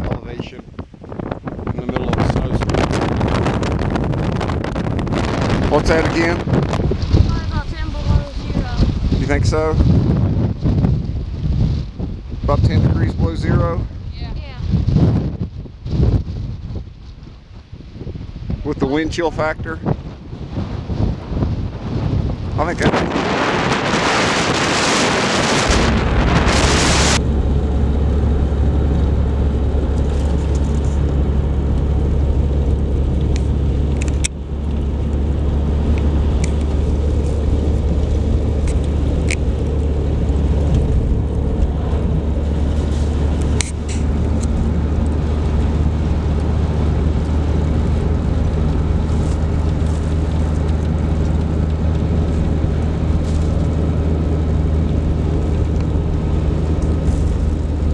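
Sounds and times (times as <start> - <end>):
wind buffeting microphone: 0.0 - 57.9
car engine and tyres drone: 20.1 - 57.9.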